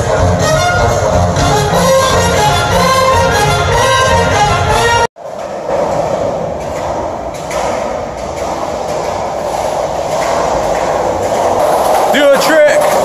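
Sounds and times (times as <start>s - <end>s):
echoing tunnel roar: 0.0s - 13.0s.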